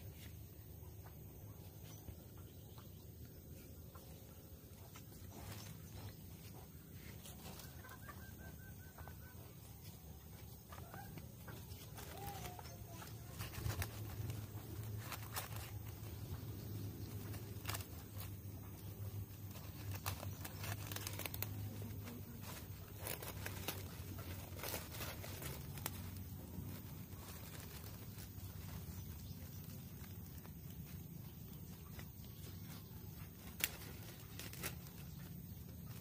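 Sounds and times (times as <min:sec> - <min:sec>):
plastic bag crinkling: 0:10.2 - 0:36.0.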